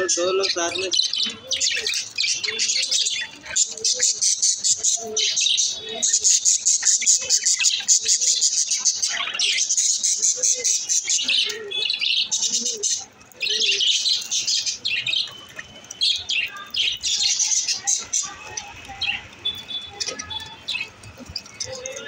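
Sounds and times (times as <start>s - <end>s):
budgerigars chattering and chirping: 0.0s - 22.0s.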